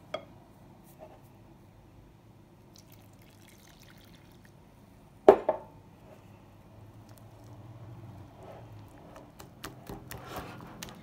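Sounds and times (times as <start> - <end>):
water trickling into bowl: 2.8 - 4.6.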